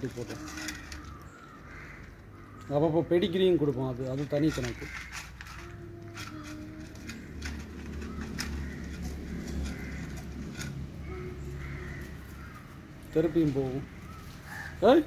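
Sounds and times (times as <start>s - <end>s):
birds calling: 0.0s - 15.0s
small clicks and scrapes: 0.2s - 2.7s, 4.2s - 11.8s.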